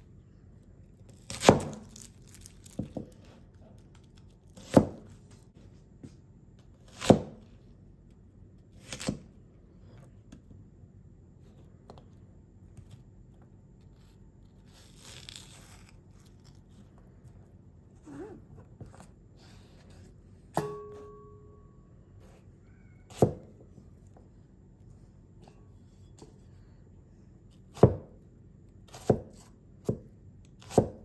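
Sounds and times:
knife slicing through onion: 1.1 - 2.1, 4.5 - 5.3, 6.8 - 7.5, 8.7 - 9.3, 23.1 - 23.6, 27.7 - 28.1, 28.9 - 31.0
cleaver chopping onion: 1.2 - 3.1, 4.5 - 5.2, 6.8 - 7.5, 8.8 - 9.3, 23.1 - 23.6, 27.7 - 28.1, 28.9 - 31.0
brief metallic ringing tone: 20.6 - 22.0.

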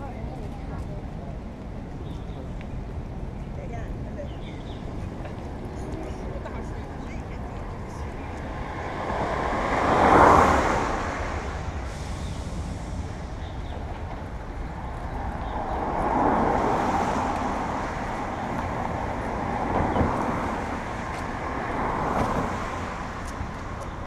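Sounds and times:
traffic rumble: 0.0 - 24.0
vehicle passing close: 7.4 - 24.0.

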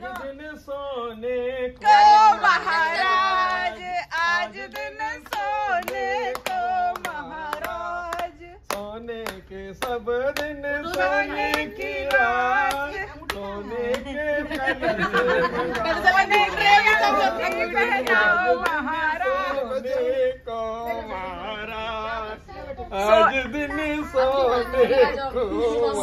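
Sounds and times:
hand clapping: 0.0 - 0.4, 4.1 - 14.7, 15.7 - 18.9
group singing: 0.0 - 26.0.

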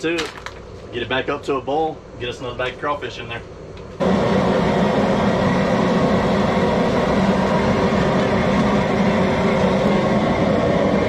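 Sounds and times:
propane burner roaring: 0.0 - 11.0.

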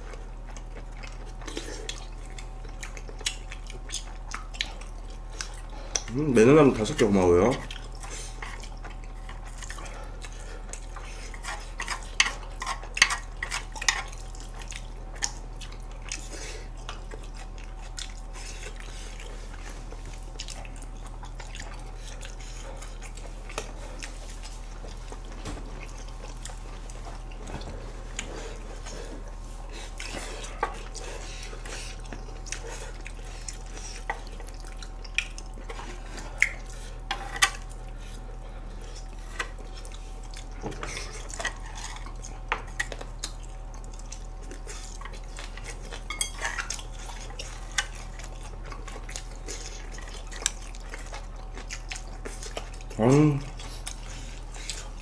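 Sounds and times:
steady low hum: 0.0 - 55.0.

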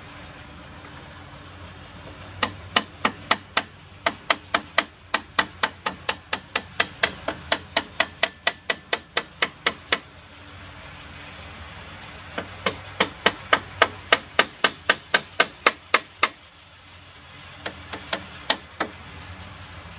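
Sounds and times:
hammer striking steel pin: 2.4 - 10.0, 17.6 - 19.0.

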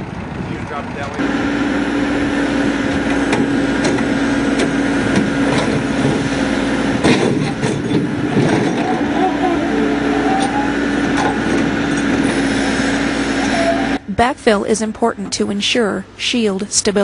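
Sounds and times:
diesel engine humming: 0.0 - 17.0
metallic knocks and clanks: 7.0 - 9.1.

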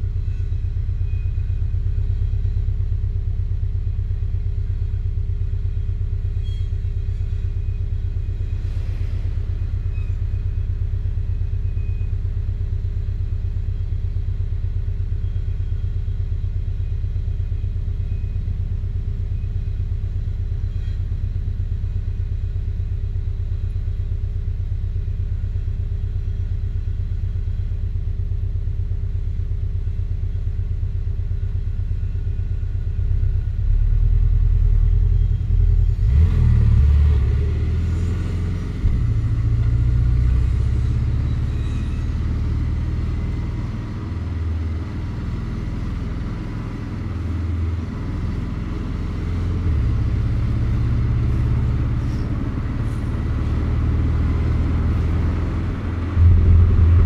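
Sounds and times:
car engine rumble: 0.0 - 57.0
road noise: 1.7 - 14.9, 32.9 - 57.0
rush of higher noise: 56.2 - 57.0.

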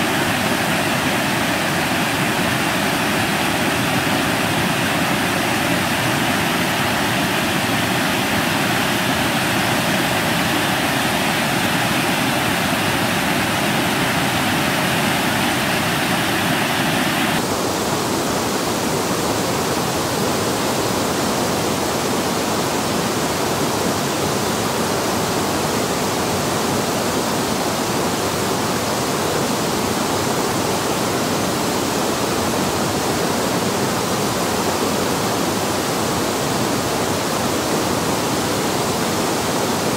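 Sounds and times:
water rushing over a weir: 0.0 - 19.8.

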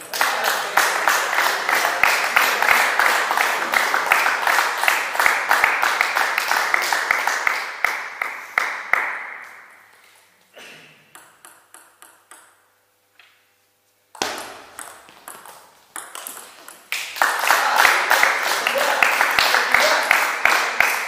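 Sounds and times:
applause: 0.0 - 9.7, 16.9 - 21.0
table tennis ball bouncing: 11.1 - 13.4, 14.1 - 17.2
table tennis rally clicks: 11.1 - 13.4, 14.2 - 17.2.

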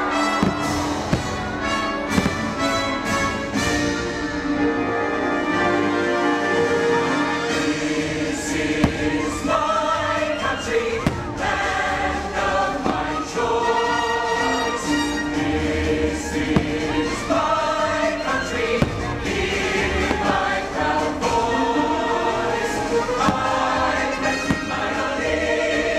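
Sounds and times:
firework bangs: 0.0 - 3.8, 8.3 - 13.7, 16.3 - 17.4, 18.4 - 20.8, 23.2 - 25.2
choir singing over an orchestra: 0.0 - 25.9.

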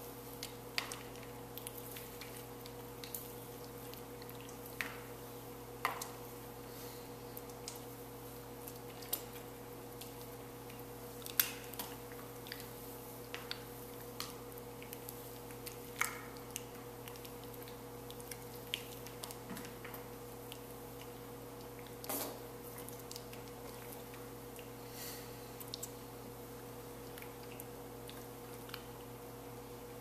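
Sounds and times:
steady electrical hum: 0.0 - 30.0
sticky wet clicks and smacks: 0.4 - 5.0, 7.4 - 7.9, 8.6 - 24.8, 25.6 - 26.0, 27.0 - 29.1.

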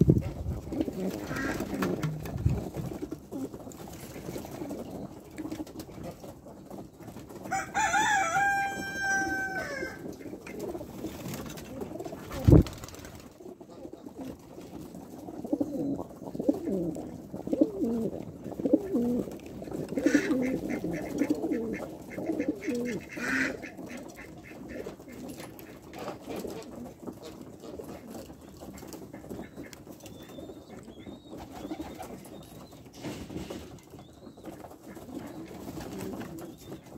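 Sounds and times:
wings flapping: 0.0 - 13.6
pigeons cooing: 0.0 - 36.9
rooster crowing: 7.5 - 10.0.

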